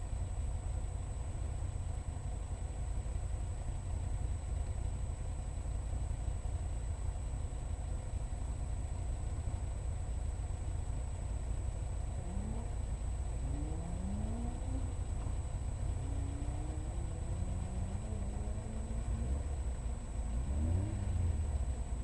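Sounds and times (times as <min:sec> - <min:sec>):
car engine idling: 0:00.0 - 0:22.0
engine revving: 0:12.2 - 0:22.0.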